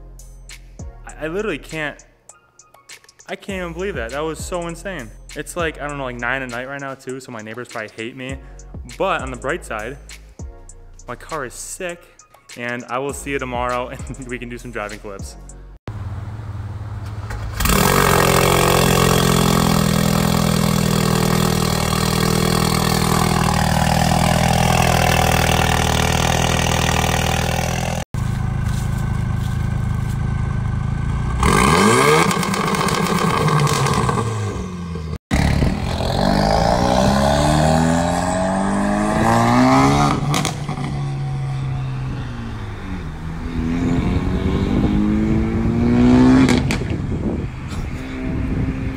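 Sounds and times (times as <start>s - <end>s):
car engine revving: 15.9s - 48.9s
car accelerating past: 33.8s - 48.9s.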